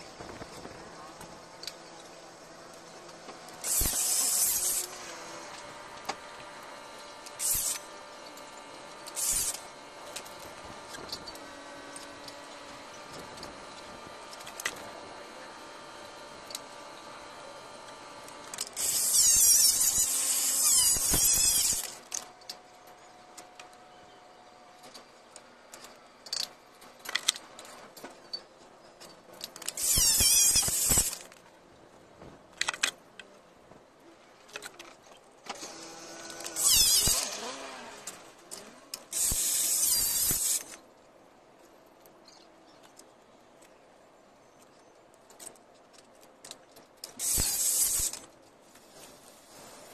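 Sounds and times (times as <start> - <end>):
tool squealing against ceramic tile: 18.8 - 21.9, 29.8 - 31.2, 36.6 - 37.3, 39.2 - 40.6.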